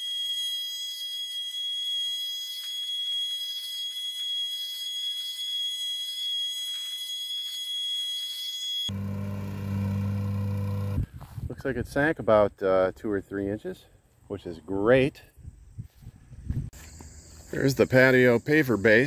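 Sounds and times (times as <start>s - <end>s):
small gasoline engine droning: 8.9s - 11.0s.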